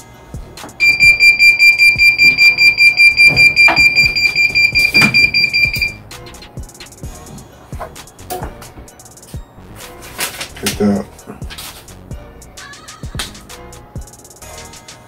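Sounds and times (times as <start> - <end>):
faint background music: 0.0 - 15.0
rapid high-pitched timer beeping: 0.8 - 6.0.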